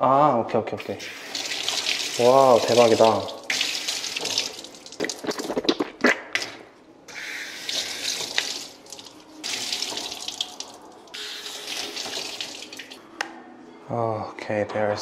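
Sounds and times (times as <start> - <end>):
tap water running into sink: 1.0 - 5.5, 7.2 - 13.0.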